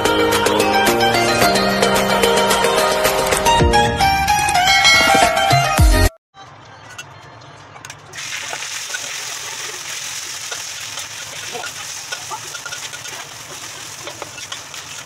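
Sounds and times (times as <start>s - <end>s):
meat sizzling in a wok: 8.2s - 15.0s.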